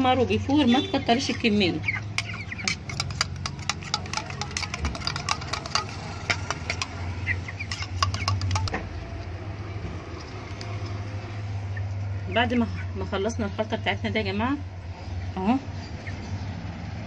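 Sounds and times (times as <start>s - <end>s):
metal spoon scraping metal bowl: 0.6s - 9.2s, 10.0s - 11.1s.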